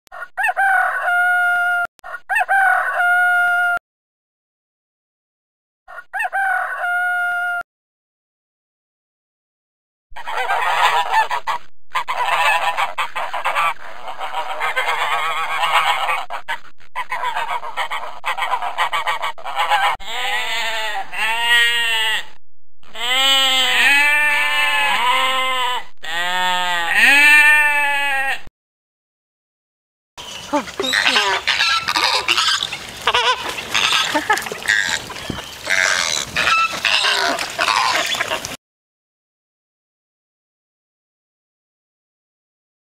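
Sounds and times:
flamingos honking: 0:10.2 - 0:22.2, 0:23.0 - 0:28.4, 0:30.2 - 0:38.6
ducks quacking: 0:10.2 - 0:22.3, 0:22.9 - 0:28.4, 0:30.2 - 0:38.6
sheep bleating: 0:20.0 - 0:28.5.

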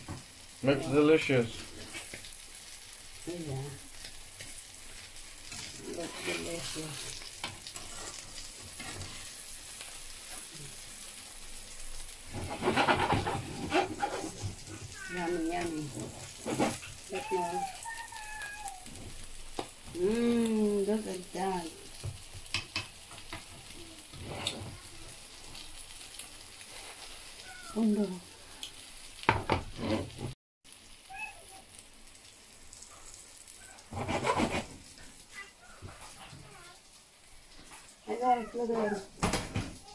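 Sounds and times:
omelette sizzling in a pan: 0:00.0 - 0:39.9
spatula scraping and knocking pan: 0:12.3 - 0:17.3, 0:33.8 - 0:34.9.

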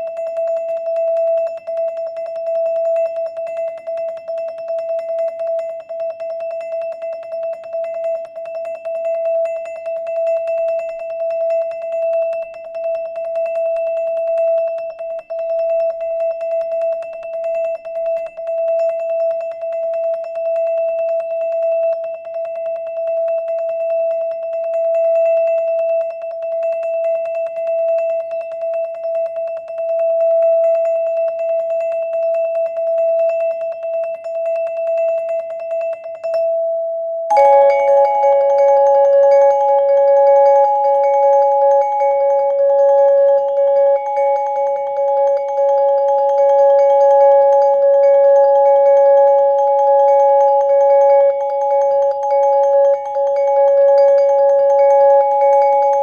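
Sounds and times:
marimba played with mallets: 0:37.3 - 0:39.8.

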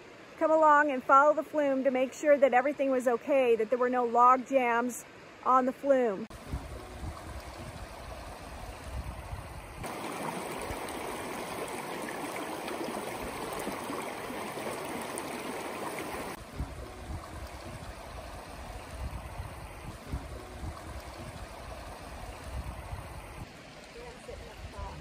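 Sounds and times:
low uneven rumble: 0:06.3 - 0:25.0
stream rushing over rocks: 0:09.8 - 0:25.0.

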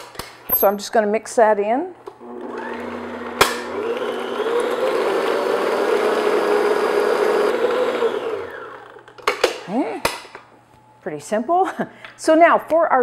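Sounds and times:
stand mixer motor hum: 0:02.2 - 0:09.0.

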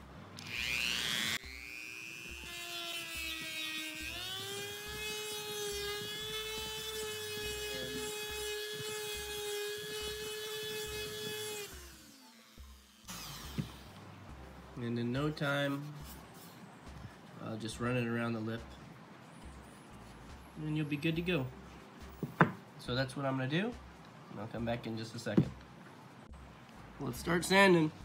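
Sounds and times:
rotary tool sanding wood: 0:00.4 - 0:13.9.

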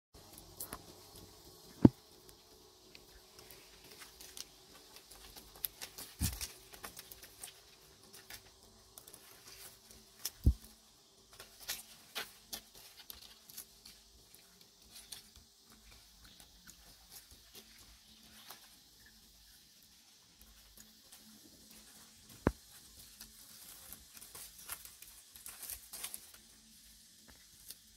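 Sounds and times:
crackles in dry leaf litter: 0:00.2 - 0:27.9
faint steady hum: 0:00.2 - 0:27.9
thumps: 0:01.8 - 0:02.0.

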